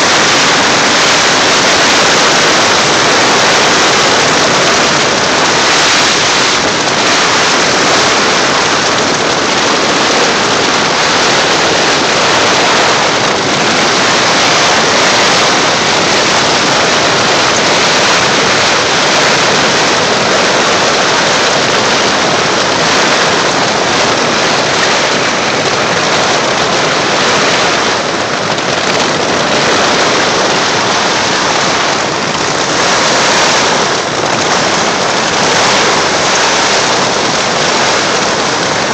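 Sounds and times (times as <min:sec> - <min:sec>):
heavy rain on tent: 0:00.0 - 0:38.9
strong wind: 0:00.0 - 0:38.9.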